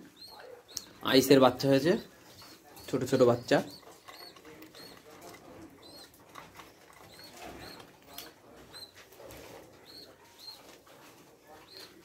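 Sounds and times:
pigeons cooing: 0.0 - 10.9, 11.5 - 12.0
faint high chirp: 9.8 - 10.6.

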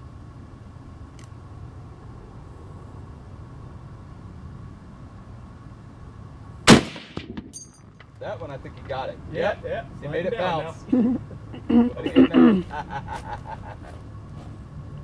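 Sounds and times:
loud rifle shot: 6.7 - 7.6.

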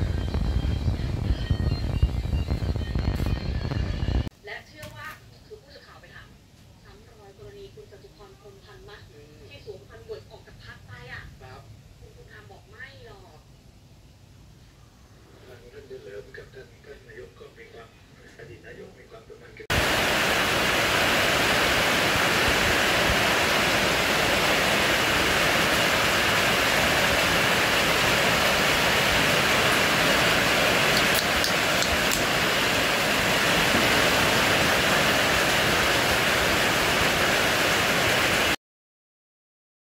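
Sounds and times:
steady hiss: 6.8 - 38.6.

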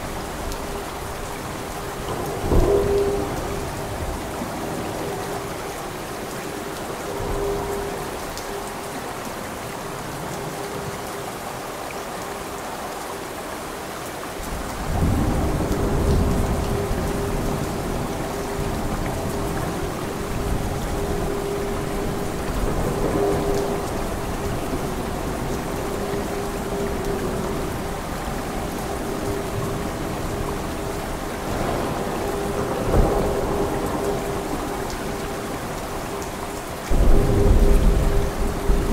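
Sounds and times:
steady rain: 0.0 - 38.9
rolling thunder: 14.5 - 30.8, 36.9 - 38.9.

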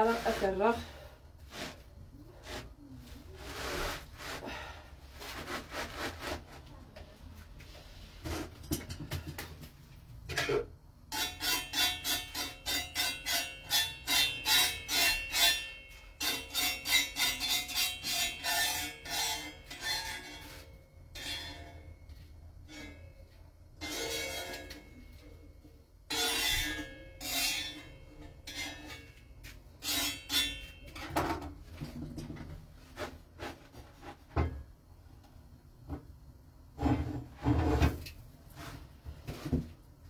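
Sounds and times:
knife scraping a griddle: 3.3 - 6.6, 11.1 - 21.9, 23.8 - 25.0, 26.1 - 30.9.

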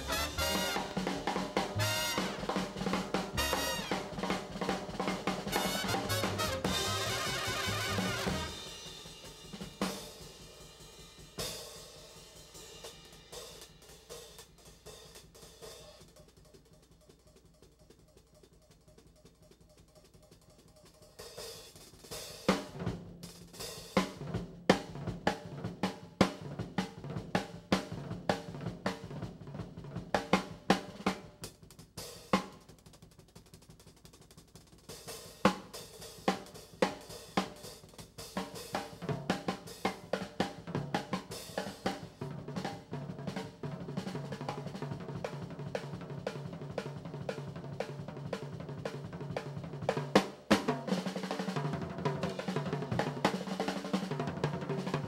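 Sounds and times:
drum kit background music: 0.0 - 18.6.

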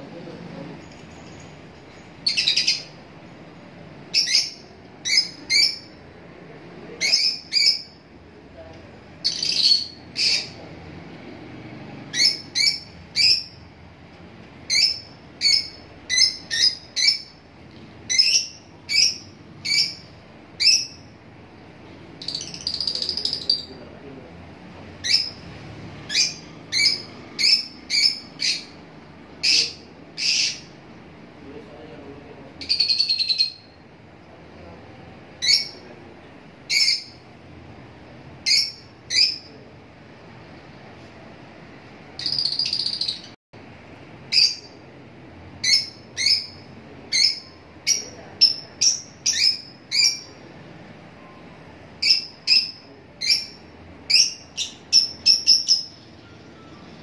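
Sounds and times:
lovebirds chirping: 0.6 - 6.1, 6.9 - 8.1, 9.2 - 10.7, 12.0 - 13.7, 14.6 - 21.2, 22.1 - 23.9, 25.0 - 30.8, 36.6 - 37.3, 38.4 - 39.6, 42.2 - 43.4, 44.3 - 44.9, 45.6 - 50.5, 51.3 - 57.0.

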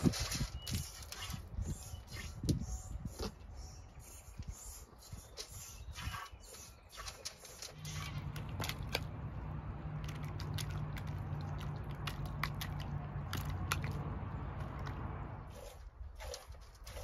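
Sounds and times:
puppy lapping water: 6.0 - 17.0
small splashes: 6.9 - 17.0.

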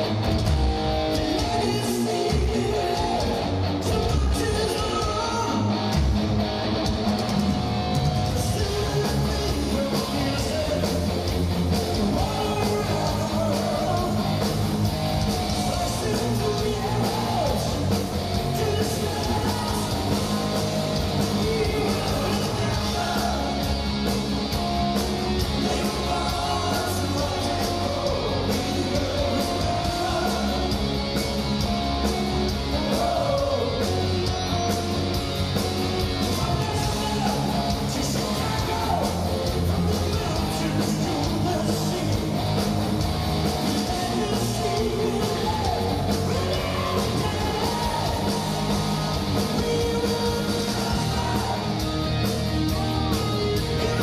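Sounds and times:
live heavy metal band: 0.0 - 54.0
singer: 1.2 - 5.8, 8.3 - 11.3, 11.9 - 14.4, 15.4 - 23.8, 25.5 - 30.9, 32.6 - 34.9, 36.2 - 42.6, 43.6 - 52.8.

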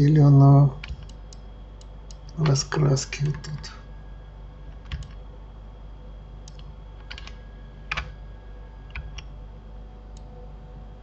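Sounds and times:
faint electrical hum: 0.0 - 11.0
keyboard keys clicking: 4.8 - 5.2, 6.5 - 8.2, 8.9 - 9.3.

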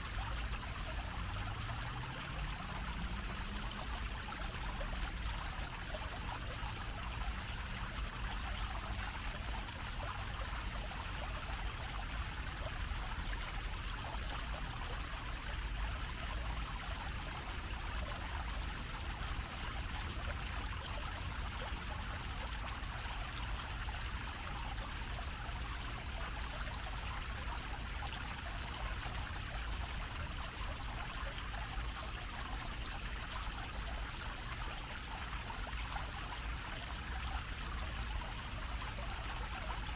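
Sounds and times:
fountain water splashing on metal grating: 0.0 - 4.7.

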